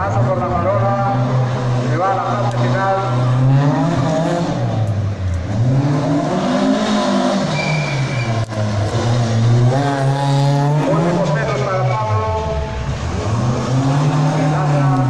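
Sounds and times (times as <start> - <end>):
car engine revving hard: 0.0 - 11.7, 12.8 - 15.0
short high squeal: 7.5 - 8.4.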